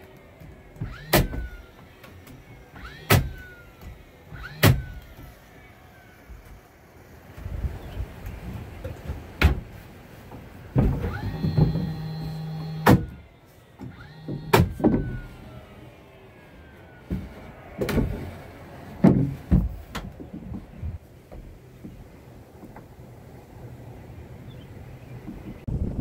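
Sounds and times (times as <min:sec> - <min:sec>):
knocks of wood and tools: 0:00.4 - 0:05.3, 0:08.8 - 0:13.2, 0:13.8 - 0:15.3, 0:17.0 - 0:18.4, 0:19.0 - 0:22.9
cordless drill driving screws: 0:13.8 - 0:15.7.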